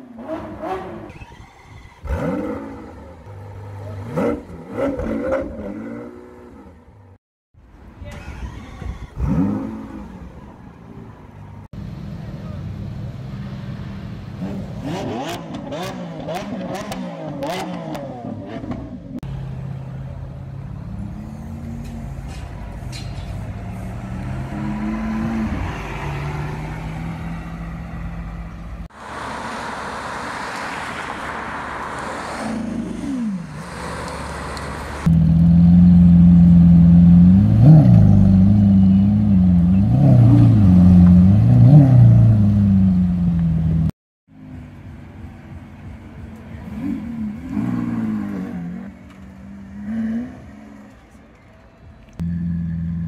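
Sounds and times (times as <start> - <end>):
sports car engine idling and revving: 2.0 - 7.2, 8.7 - 29.3, 32.5 - 53.0
car accelerating past: 23.5 - 28.5.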